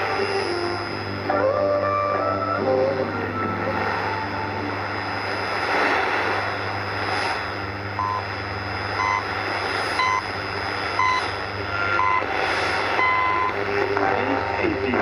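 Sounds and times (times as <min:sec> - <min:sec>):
low hum: 0:00.0 - 0:15.0
radio static hiss: 0:00.0 - 0:15.0
short beeps: 0:11.0 - 0:11.3, 0:12.0 - 0:12.3, 0:13.0 - 0:13.6.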